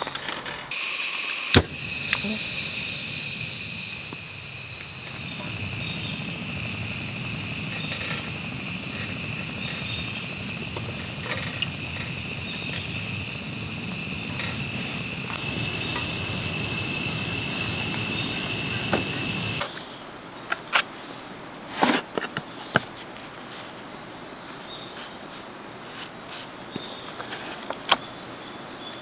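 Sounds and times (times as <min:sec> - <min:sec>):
butter and bread sizzling: 0:00.7 - 0:19.6
gas stove burner rushing: 0:00.7 - 0:19.6
high insect drone: 0:00.7 - 0:19.6.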